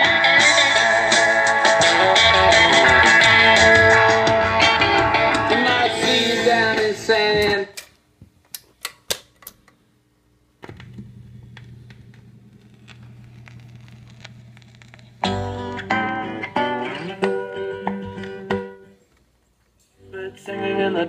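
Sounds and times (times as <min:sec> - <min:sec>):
record music playing: 0:00.0 - 0:07.8, 0:11.7 - 0:19.1
steady low hum: 0:09.6 - 0:17.2
record surface noise and ticks: 0:10.7 - 0:16.1.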